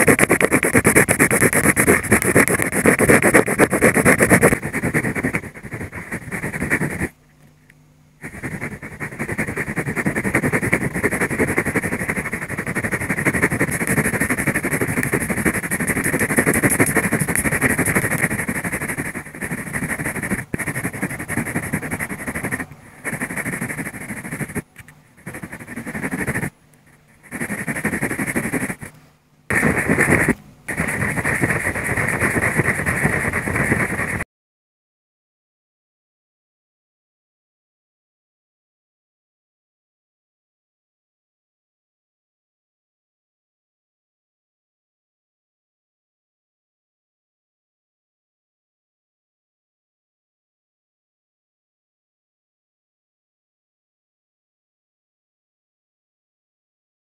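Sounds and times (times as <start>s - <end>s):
pencil scratching on paper: 0.0s - 7.1s, 8.2s - 28.9s, 29.5s - 34.2s.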